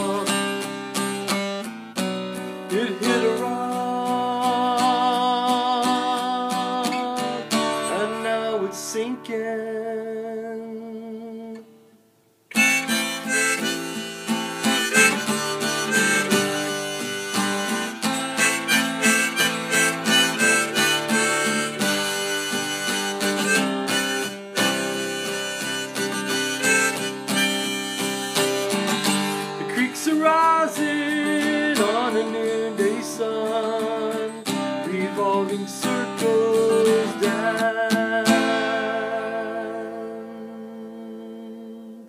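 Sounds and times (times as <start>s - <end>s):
strummed acoustic guitar: 0.0s - 42.0s
harmonica playing: 12.5s - 29.5s.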